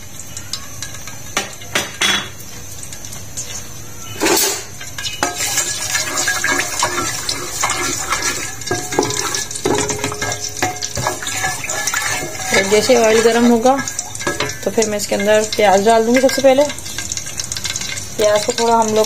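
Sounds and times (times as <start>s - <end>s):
spoon scraping pot bottom: 4.2s - 18.0s
wooden spoon knocking on pot: 8.7s - 15.5s.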